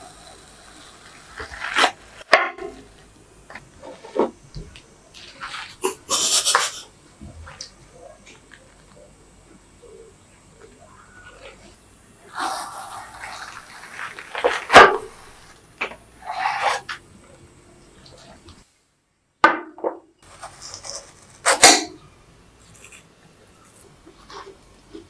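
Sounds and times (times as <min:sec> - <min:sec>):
watermelon flesh crunching: 0:12.3 - 0:15.5
knife cutting watermelon: 0:20.3 - 0:22.0.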